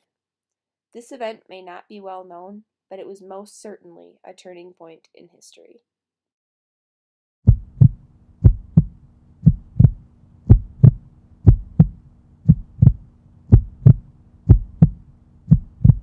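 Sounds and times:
faint steady hum: 7.5s - 16.0s
heartbeat thumps: 7.5s - 16.0s.

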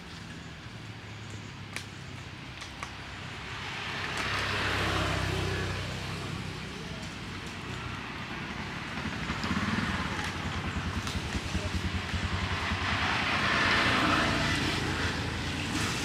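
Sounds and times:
vehicle passing by: 3.3s - 16.0s
another vehicle engine: 3.5s - 16.0s.

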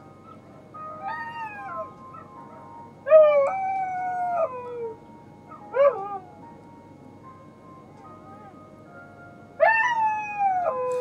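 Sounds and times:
dog howling: 0.8s - 6.4s, 9.6s - 11.0s.

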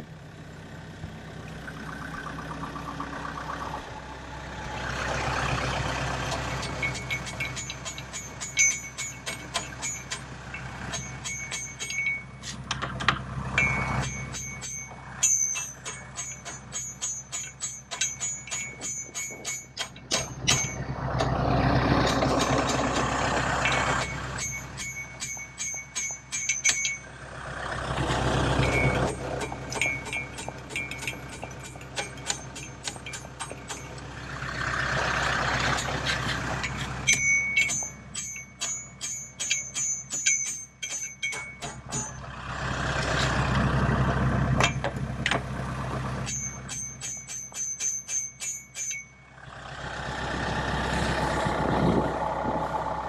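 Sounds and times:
hammer striking metal: 6.3s - 21.4s, 22.0s - 27.1s, 28.6s - 34.1s, 35.7s - 42.3s, 44.6s - 45.4s, 46.2s - 49.2s.

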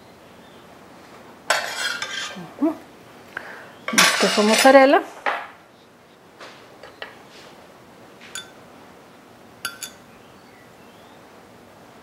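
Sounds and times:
metal spoon clinking glass bowl: 8.4s - 8.6s, 9.6s - 10.0s.

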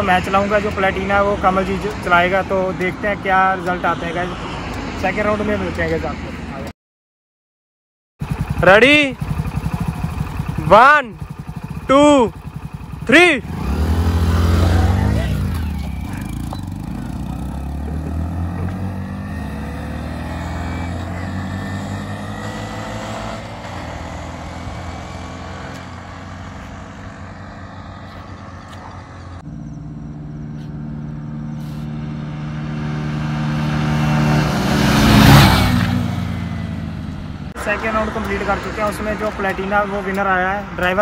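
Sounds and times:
motorcycles running flat out: 8.2s - 41.0s.

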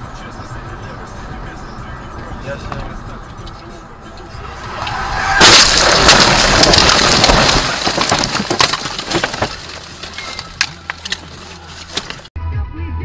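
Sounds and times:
car crash impact: 4.4s - 11.3s
crunching and breaking glass: 4.6s - 12.3s
falling debris cracks and ticks: 4.7s - 12.3s.

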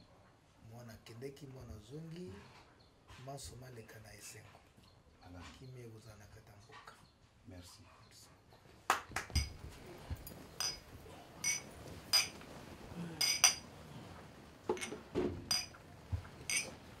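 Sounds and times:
drinking glasses clinking: 9.3s - 13.8s, 14.7s - 17.0s.

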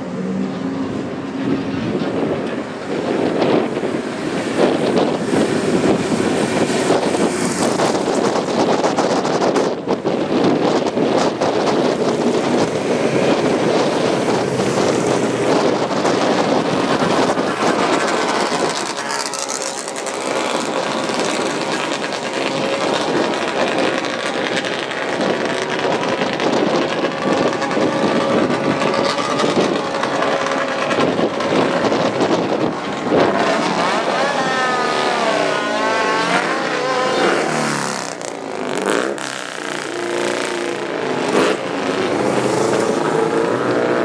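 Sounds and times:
racing engines at high revs: 0.0s - 44.0s.

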